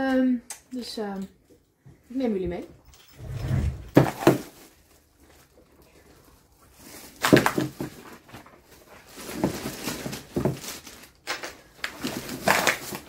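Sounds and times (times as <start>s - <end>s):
plastic wrapping crinkling: 4.0s - 13.0s.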